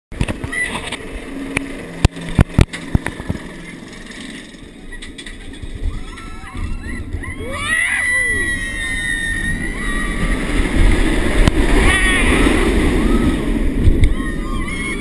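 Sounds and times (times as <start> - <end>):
low mechanical hum: 0.1 - 15.0
roller coaster clacks: 0.1 - 15.0
riders screaming: 4.6 - 15.0
wind on microphone: 5.6 - 15.0.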